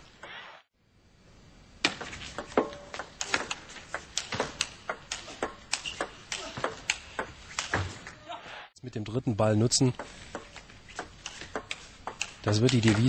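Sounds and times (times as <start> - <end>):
table tennis ball clicking: 10.0 - 13.0.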